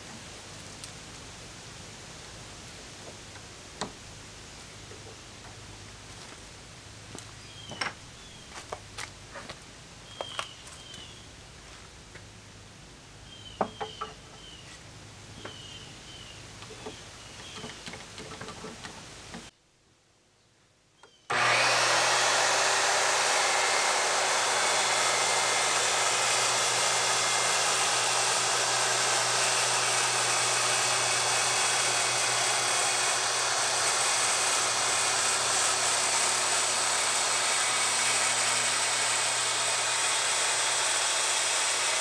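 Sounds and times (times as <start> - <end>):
circular saw cutting plywood: 21.3 - 42.0.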